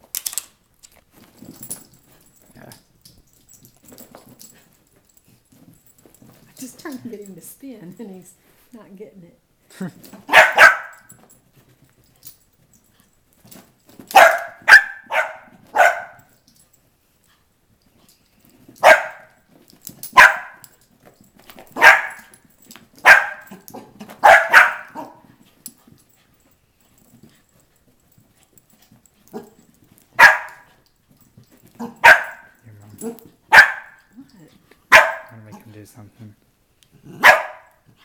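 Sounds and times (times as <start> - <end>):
small dog barking: 10.2 - 11.1, 14.1 - 16.3, 18.8 - 19.3, 20.1 - 20.7, 21.8 - 22.3, 23.0 - 25.3, 30.2 - 30.7, 31.8 - 34.1, 34.9 - 35.5, 37.1 - 37.8.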